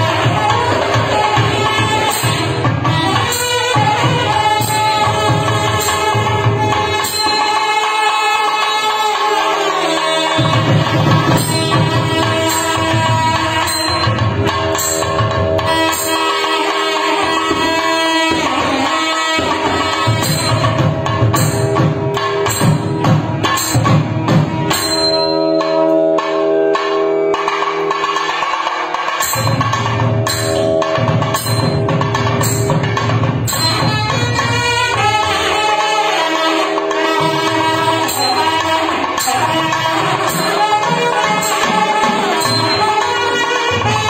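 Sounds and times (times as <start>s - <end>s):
barrel drums beating: 19.8s - 25.7s, 29.2s - 35.2s.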